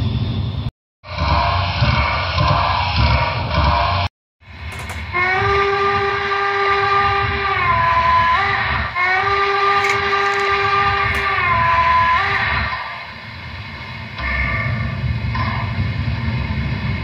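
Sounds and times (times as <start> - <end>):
steam whistle blast: 4.8 - 13.0.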